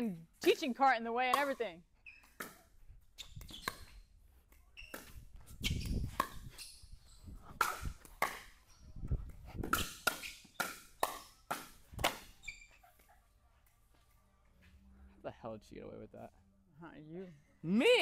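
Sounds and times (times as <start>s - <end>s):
ball bouncing on court: 0.4s - 4.0s, 4.8s - 6.7s, 7.5s - 8.6s, 9.6s - 12.3s.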